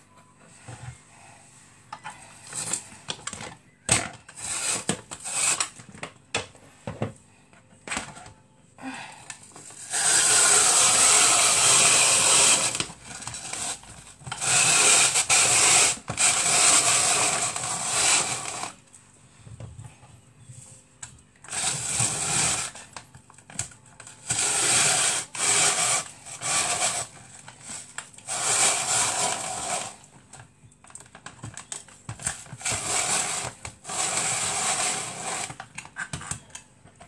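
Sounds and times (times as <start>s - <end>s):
hand chopper whirring and grinding: 4.3s - 5.8s, 9.7s - 18.8s, 21.4s - 22.9s, 24.2s - 30.0s, 32.5s - 35.7s.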